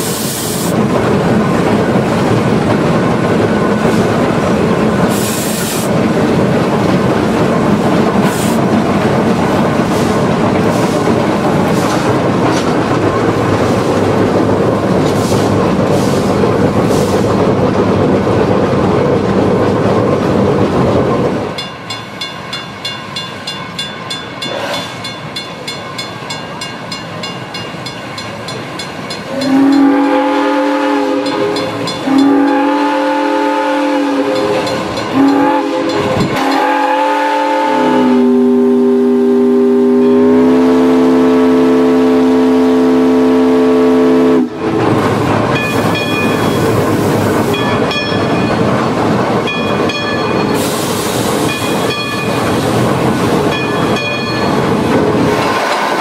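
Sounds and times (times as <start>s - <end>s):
locomotive running with clicks: 0.7s - 30.6s, 31.2s - 32.9s, 34.2s - 36.9s, 44.6s - 56.0s
steam locomotive whistle blasts: 29.3s - 44.7s.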